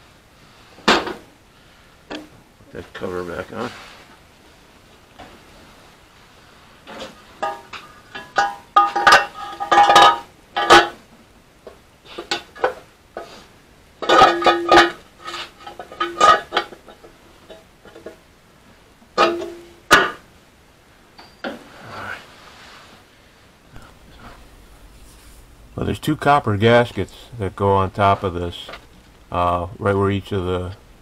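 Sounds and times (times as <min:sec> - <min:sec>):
metal parts and tools clinking: 0:06.9 - 0:11.0, 0:14.0 - 0:18.2, 0:19.2 - 0:20.2, 0:21.2 - 0:21.6.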